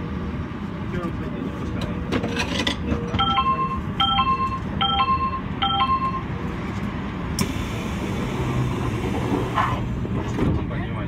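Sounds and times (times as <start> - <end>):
two-tone door chime: 3.2 - 6.3.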